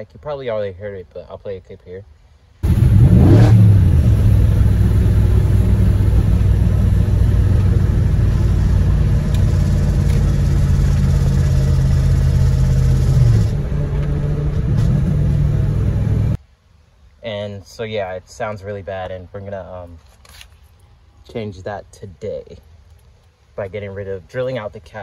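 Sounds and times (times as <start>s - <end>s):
car engine droning: 2.6s - 16.4s.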